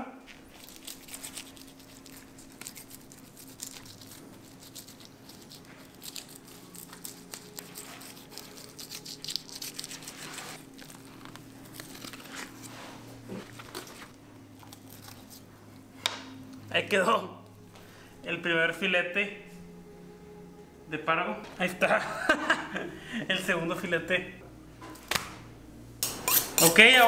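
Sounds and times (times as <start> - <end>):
low steady hum: 0.0 - 27.0
knife scraping fish scales: 0.6 - 11.0, 26.1 - 27.0.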